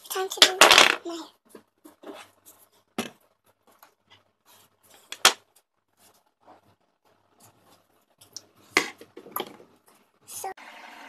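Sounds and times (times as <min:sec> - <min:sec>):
light rustling of objects: 0:00.0 - 0:10.2
sharp knocks of objects moved: 0:04.9 - 0:05.6.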